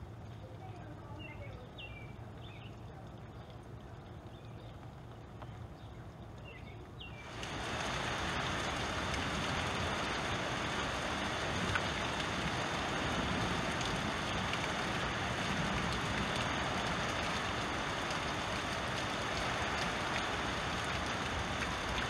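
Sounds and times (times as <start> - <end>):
heavy rain hissing: 7.2 - 22.0
water splashing down rain chain: 7.2 - 22.0.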